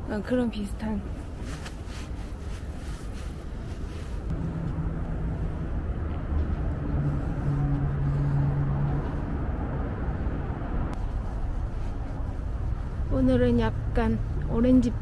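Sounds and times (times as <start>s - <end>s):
moving vehicle rumble: 0.0s - 15.0s.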